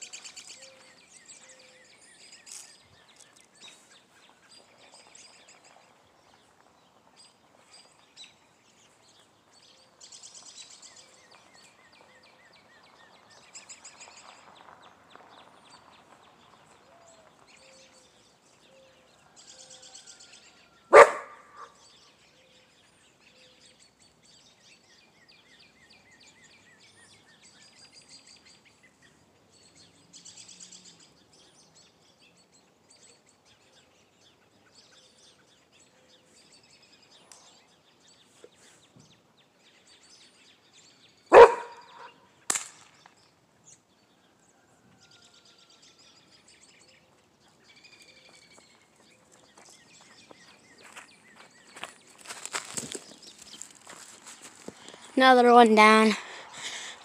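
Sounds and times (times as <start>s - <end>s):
small birds chirping: 0.0s - 57.0s
sharp crack: 42.5s - 43.2s.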